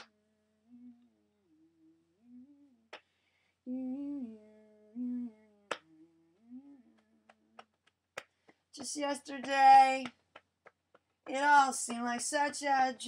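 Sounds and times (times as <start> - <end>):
person humming: 0.0 - 3.0, 3.7 - 7.6.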